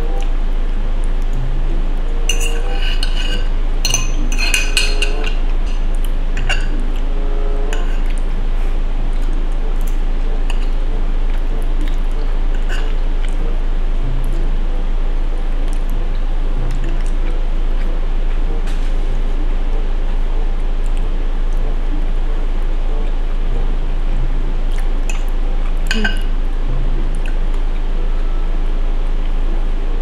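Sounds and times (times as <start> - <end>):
low electrical hum: 0.0 - 30.0
cutlery clinking on a dish: 2.3 - 5.8.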